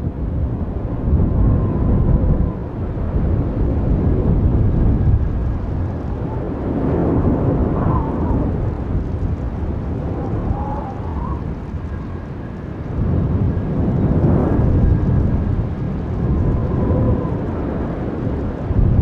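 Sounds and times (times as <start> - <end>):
deep steady rumble: 0.0 - 19.0
faint wavering whistle-like tones: 10.0 - 12.6.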